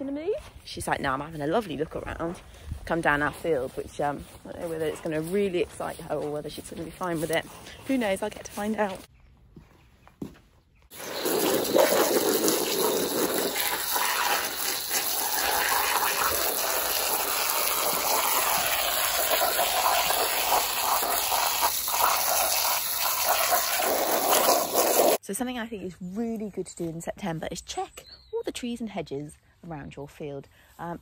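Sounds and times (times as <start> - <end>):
hose spraying water: 10.9 - 25.2.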